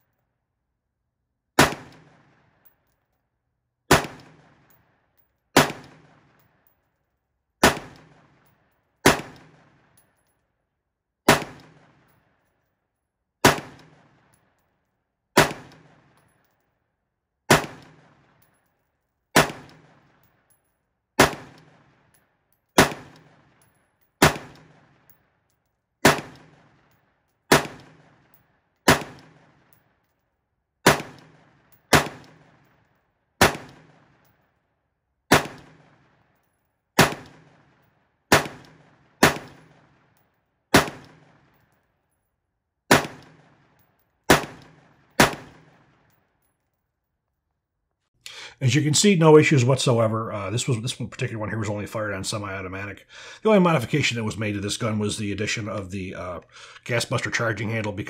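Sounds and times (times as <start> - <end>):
rifle shots: 1.6 - 2.6, 3.9 - 4.8, 5.6 - 6.4, 7.6 - 10.0, 11.3 - 12.1, 13.4 - 14.3, 15.4 - 16.2, 17.5 - 18.4, 19.4 - 20.2, 21.2 - 22.1, 22.8 - 23.6, 24.2 - 25.2, 26.0 - 29.8, 30.8 - 32.7, 33.4 - 34.3, 35.3 - 36.2, 37.0 - 41.6, 42.9 - 46.1.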